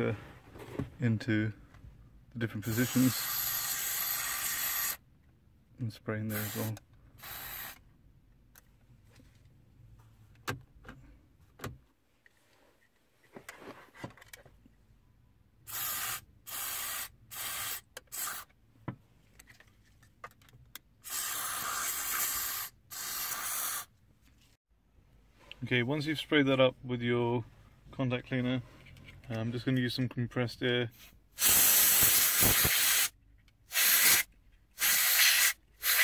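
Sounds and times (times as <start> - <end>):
aerosol spray hissing bursts: 15.7 - 18.4, 21.0 - 23.9, 31.4 - 33.1, 33.7 - 36.0.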